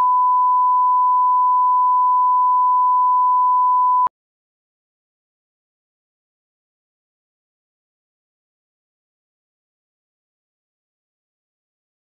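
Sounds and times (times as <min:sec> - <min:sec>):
steady test tone beep: 0:00.0 - 0:04.1.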